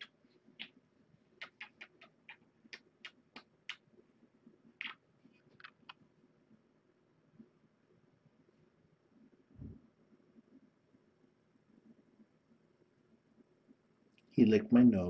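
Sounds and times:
faint lip smacks: 0.0 - 0.8, 1.4 - 3.8, 4.8 - 6.0.

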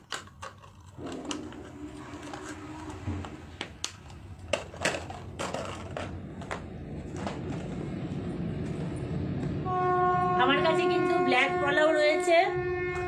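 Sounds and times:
bangles and plastic packaging rattling: 0.0 - 7.8.

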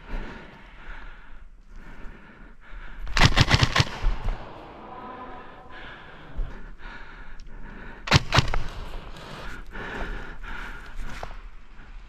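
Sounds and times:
airsoft rifle shots: 3.1 - 4.7, 8.1 - 9.1.

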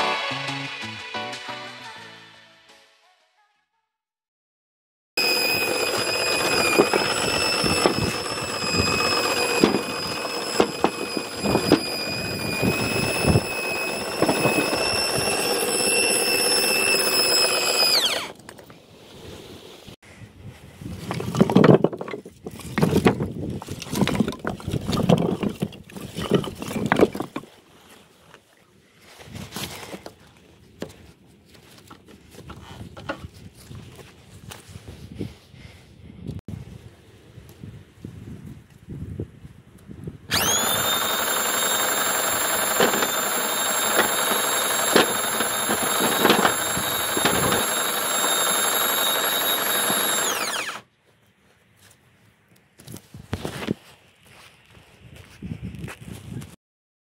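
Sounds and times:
electric drill whining: 5.2 - 18.4, 40.3 - 50.9.

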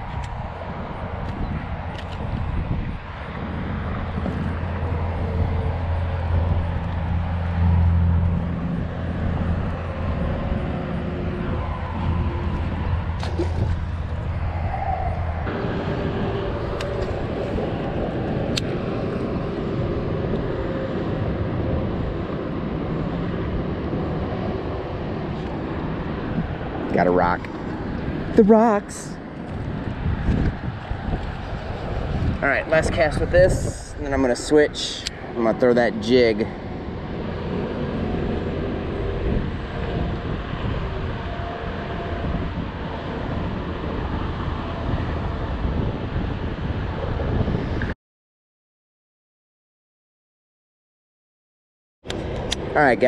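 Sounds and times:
wind buffeting microphone: 0.0 - 48.0.

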